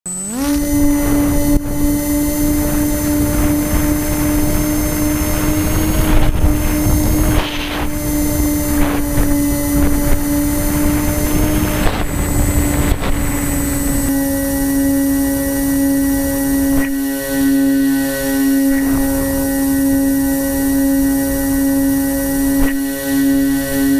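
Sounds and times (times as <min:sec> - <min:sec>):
electric motor and propeller whine: 0:00.0 - 0:23.9
air rushing over microphone: 0:00.6 - 0:16.8.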